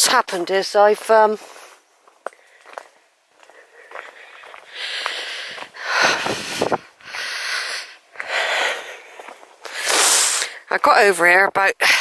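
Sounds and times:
person breathing close up: 1.4s - 10.7s.

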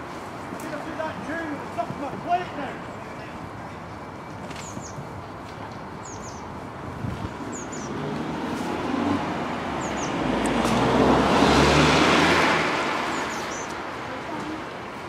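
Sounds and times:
bird chirps: 2.9s - 5.1s, 6.0s - 6.5s, 7.5s - 8.0s, 9.8s - 10.2s, 13.1s - 13.8s
vehicle passing by: 7.1s - 15.0s.

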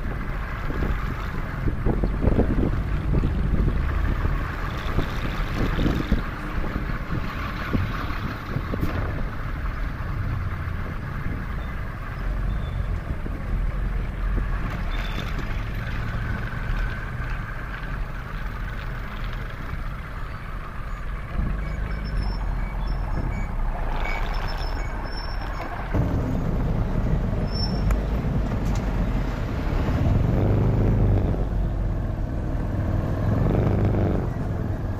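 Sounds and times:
motorcycle engine and tyre noise: 0.0s - 34.9s
trucks and tricycles passing: 0.0s - 34.9s
wind rumbling on microphone: 0.0s - 34.9s.

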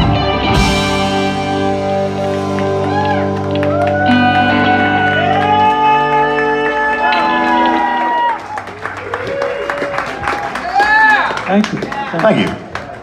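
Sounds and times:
rock band final chord crash: 0.0s - 8.1s
electric guitars sustaining: 0.0s - 8.9s
bass guitar: 0.0s - 9.4s.

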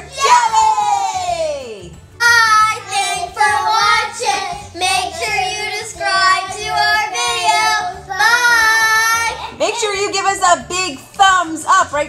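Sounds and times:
children singing together: 2.2s - 9.6s.

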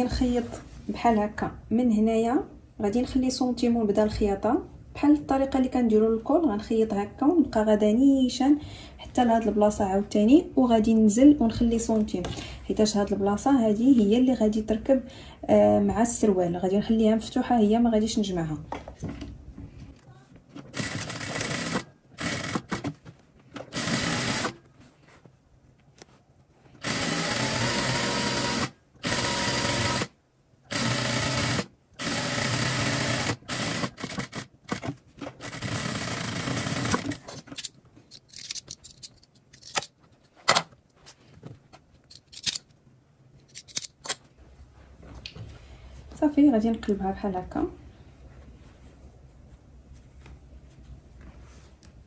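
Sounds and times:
sewing machine stitching: 20.7s - 22.9s, 23.7s - 24.6s, 26.8s - 30.1s, 30.7s - 37.3s.

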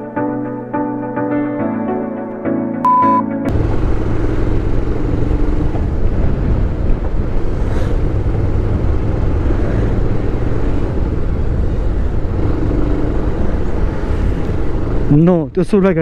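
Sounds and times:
motorcycle engine: 3.5s - 15.1s
wind on microphone: 3.5s - 15.1s.

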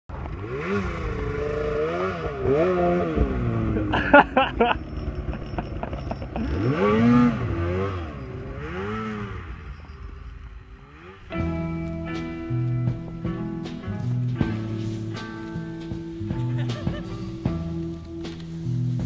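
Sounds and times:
snowmobile engine revving: 0.1s - 11.7s.

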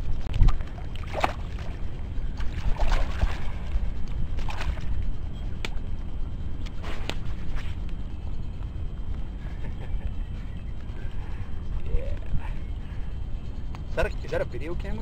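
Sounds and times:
wind rumble on microphone: 0.0s - 15.0s
water sloshing and splashing: 0.3s - 3.8s, 4.4s - 5.0s.

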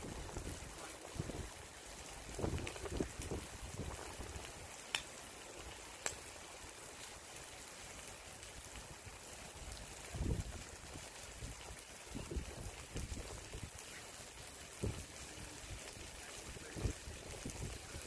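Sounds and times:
wind buffeting microphone: 0.0s - 4.6s, 9.8s - 13.8s, 14.7s - 18.0s
steady hiss: 0.0s - 18.0s.

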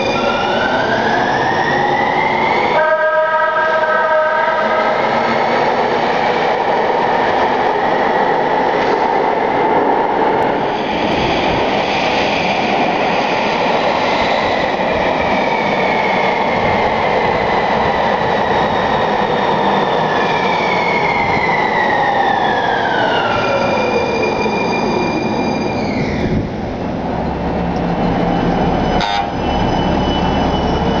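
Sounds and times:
train whine falling in pitch: 28.3s - 31.0s.

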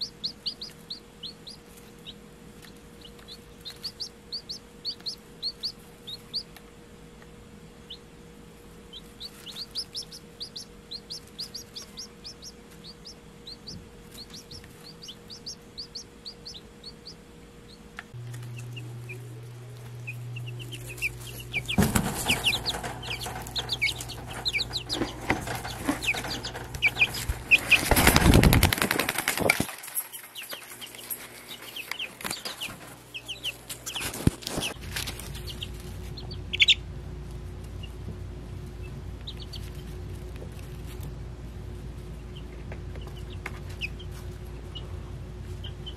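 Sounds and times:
chicks peeping: 0.0s - 45.9s
rustling and clattering: 20.7s - 36.1s.

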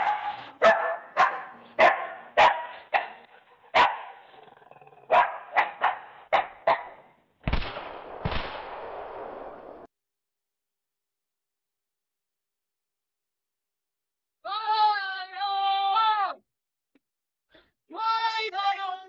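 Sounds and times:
dog barking: 0.0s - 4.4s, 5.0s - 7.1s
gunshots with echoing tails: 7.4s - 9.9s.

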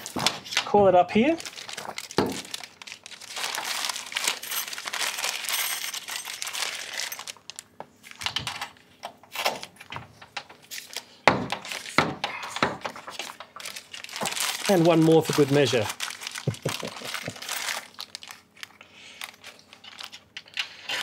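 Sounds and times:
plastic cable clip rustling: 1.4s - 5.5s.

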